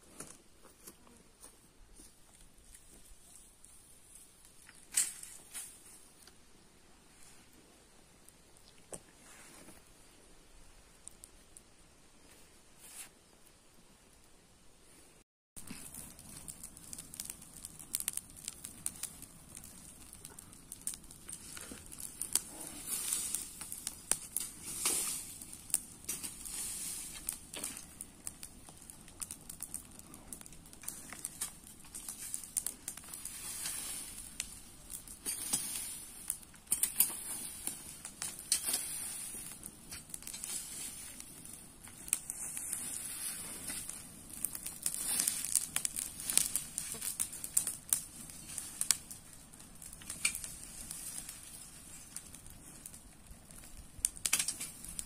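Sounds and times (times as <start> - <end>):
brush fire crackling: 0.0 - 14.4, 15.6 - 55.0
leaves rustling under a rake: 21.3 - 28.4, 30.8 - 49.2.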